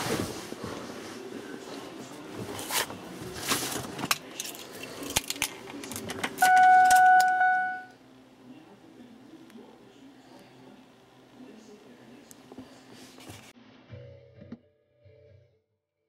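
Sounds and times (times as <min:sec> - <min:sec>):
electronic beep: 0:06.4 - 0:07.9.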